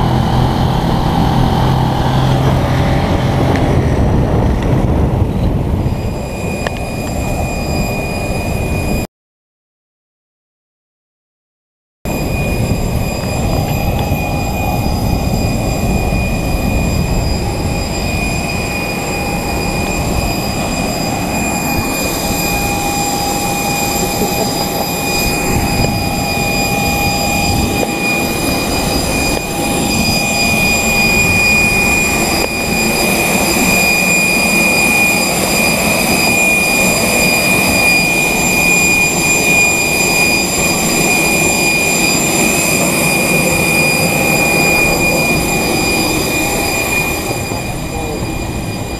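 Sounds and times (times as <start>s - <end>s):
continuous jet rush: 0.0s - 9.1s, 12.1s - 48.9s
jet turbine whine: 0.0s - 9.1s, 12.1s - 48.9s.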